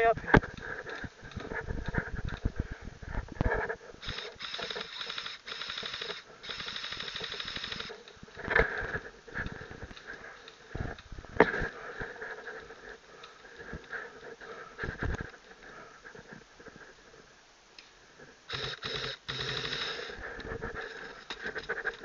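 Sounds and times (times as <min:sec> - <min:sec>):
airsoft gun firing bursts: 0:04.0 - 0:08.0, 0:18.5 - 0:20.1.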